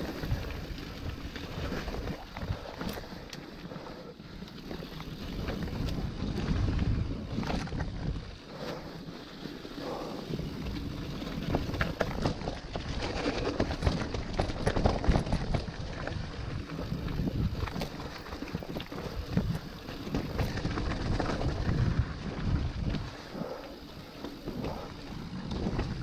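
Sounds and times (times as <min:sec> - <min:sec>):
bike rattling over bumps: 0:00.0 - 0:26.0
bike tyre roar: 0:00.0 - 0:26.0
wind buffeting microphone: 0:09.9 - 0:26.0.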